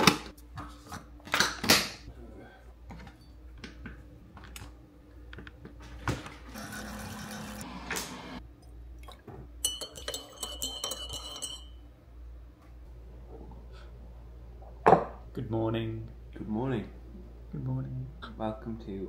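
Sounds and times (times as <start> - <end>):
coffee pouring with low hum: 6.0 - 11.8
teaspoon clinking against mug: 9.6 - 11.8.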